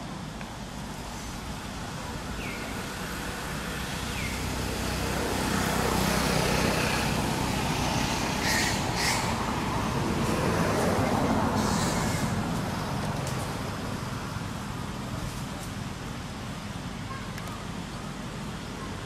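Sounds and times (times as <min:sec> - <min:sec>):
vehicle engine and road noise: 0:00.0 - 0:19.0.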